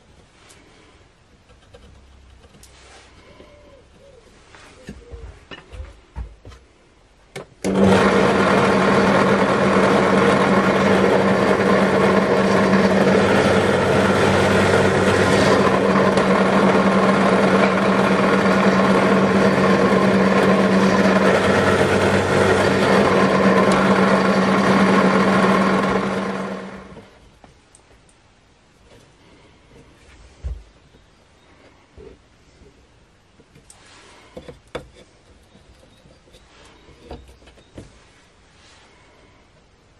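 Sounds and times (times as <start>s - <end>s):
drill press motor humming: 7.6s - 27.2s.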